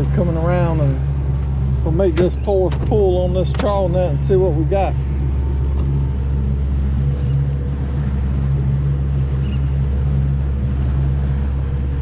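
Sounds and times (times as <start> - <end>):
outboard motor drone: 0.0 - 12.0
water rushing along hull: 0.0 - 12.0.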